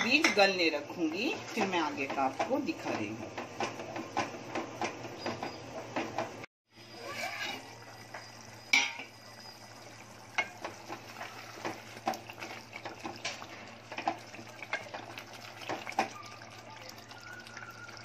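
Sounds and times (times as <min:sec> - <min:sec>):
soft sizzle: 0:00.0 - 0:05.3, 0:06.7 - 0:18.0
spoon clinking and scraping pot: 0:07.0 - 0:09.6
spoon clanking on pot: 0:07.2 - 0:09.2.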